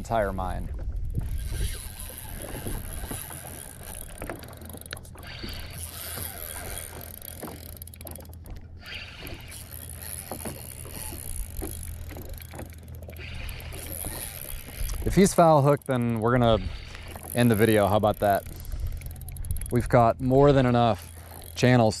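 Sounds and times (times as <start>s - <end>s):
water lapping against boat hull: 0.0s - 22.0s
small splashes and knocks: 0.6s - 16.0s.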